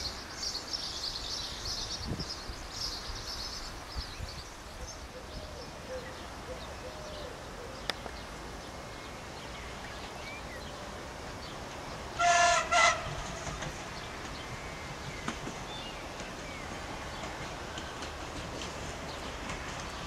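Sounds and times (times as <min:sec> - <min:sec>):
train horn blasts: 0:12.2 - 0:13.4.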